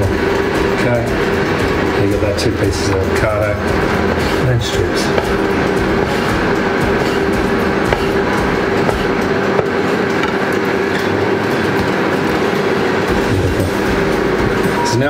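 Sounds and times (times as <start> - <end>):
constant pitched tone: 0.0 - 15.0
machine hum: 0.0 - 15.0
knife tapping on wooden board: 5.1 - 6.2, 7.8 - 10.4.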